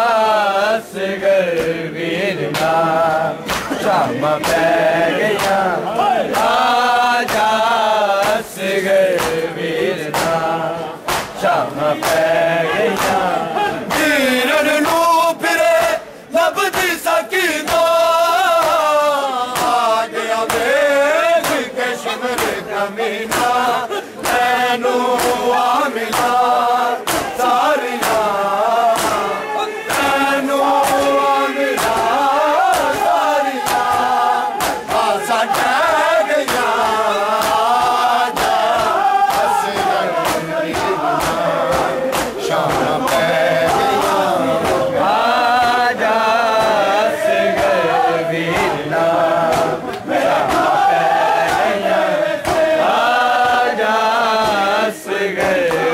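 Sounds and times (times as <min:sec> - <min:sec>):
men chanting in unison: 0:00.0 - 0:55.9
chest-beating slaps: 0:03.4 - 0:06.6, 0:07.2 - 0:07.6, 0:09.1 - 0:09.5, 0:10.1 - 0:10.4, 0:11.0 - 0:14.2, 0:19.5 - 0:20.7, 0:21.4 - 0:22.7, 0:23.3 - 0:24.5, 0:25.2 - 0:25.5, 0:26.1 - 0:28.3, 0:28.9 - 0:30.2, 0:31.8 - 0:45.9, 0:49.4 - 0:50.8.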